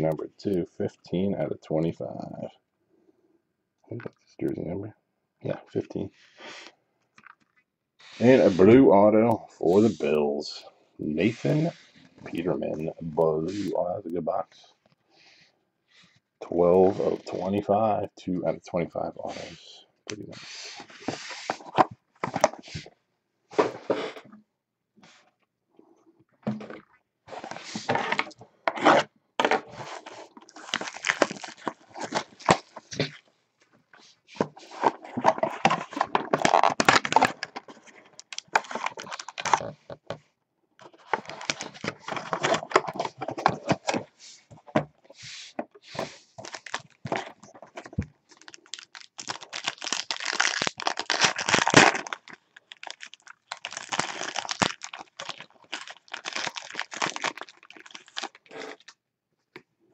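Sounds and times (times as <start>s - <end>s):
foil wrapper tearing and crinkling: 30.5s - 32.7s, 48.3s - 58.9s.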